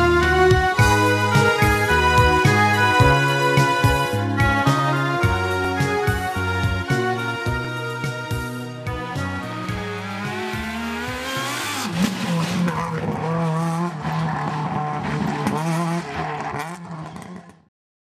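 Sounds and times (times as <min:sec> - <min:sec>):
rally car engine revving: 0:00.0 - 0:17.7
tyres on gravel: 0:10.0 - 0:17.5.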